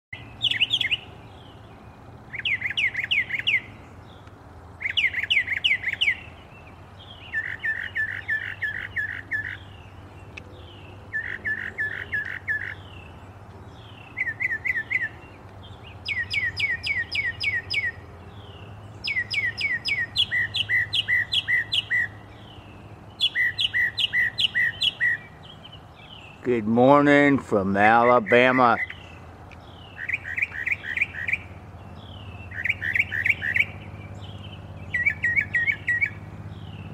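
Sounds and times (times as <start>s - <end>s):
songbird singing whistled phrases: 0.2s - 1.4s, 2.3s - 3.8s, 4.8s - 6.4s, 7.0s - 9.8s, 10.7s - 13.0s, 13.8s - 18.0s, 19.0s - 22.6s, 23.2s - 26.4s, 28.1s - 36.9s.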